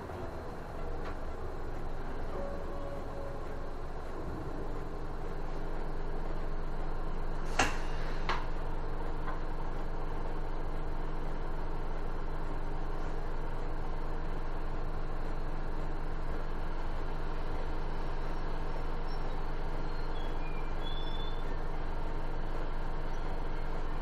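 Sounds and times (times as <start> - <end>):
bus engine idling: 0.0 - 24.0.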